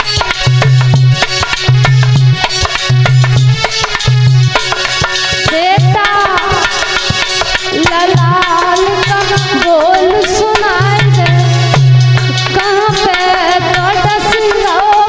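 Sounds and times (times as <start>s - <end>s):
tabla rhythm: 0.0s - 15.0s
woman singing: 5.5s - 6.9s, 7.7s - 11.8s, 12.5s - 15.0s.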